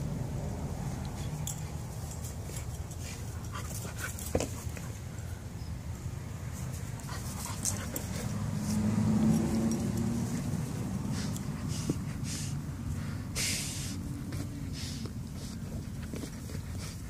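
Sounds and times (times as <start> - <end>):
dog panting: 6.9 - 8.6, 10.0 - 13.4, 14.1 - 17.0.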